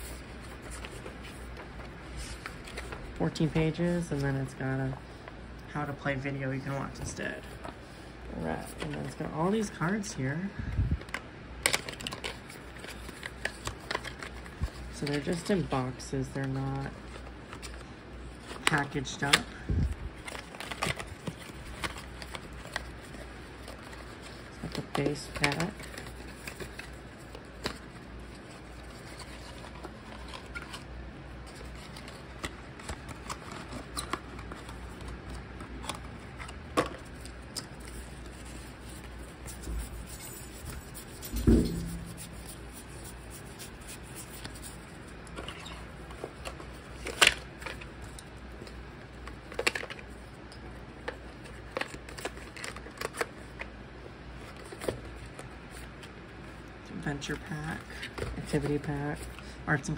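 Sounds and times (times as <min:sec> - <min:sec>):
playing cards clicking and rustling: 0:00.0 - 0:04.4, 0:08.4 - 0:10.1, 0:10.9 - 0:53.8, 0:54.4 - 0:56.2, 0:57.2 - 0:59.6
thump: 0:41.3 - 0:42.1.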